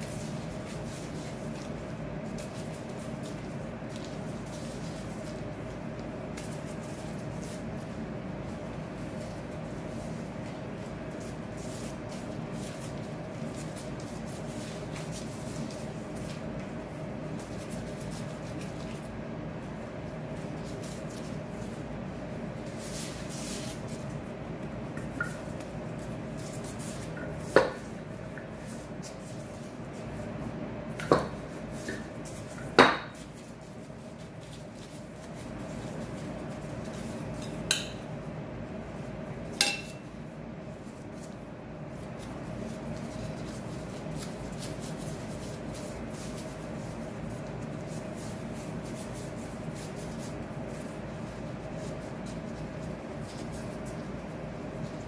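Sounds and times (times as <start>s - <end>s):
steady background hum: 0.0s - 55.0s
metal spoon clinking on dish: 39.6s - 40.0s.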